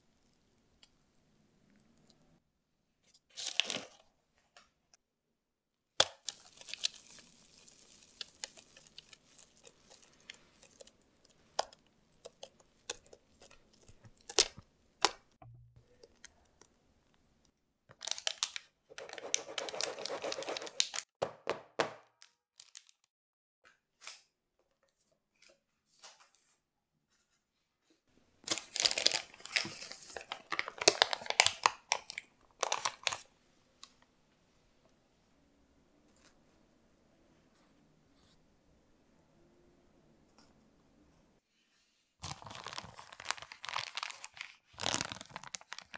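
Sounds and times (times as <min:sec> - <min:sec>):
baking paper rustling and crinkling: 0:03.3 - 0:04.0, 0:06.2 - 0:11.6, 0:18.0 - 0:21.1, 0:28.4 - 0:33.3, 0:42.2 - 0:45.9.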